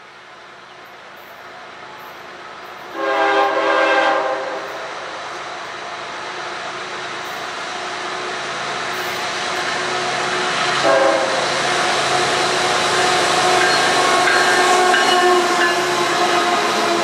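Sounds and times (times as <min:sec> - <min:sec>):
train rumbling past: 0:00.0 - 0:17.0
train horn: 0:02.9 - 0:04.9, 0:10.6 - 0:17.0.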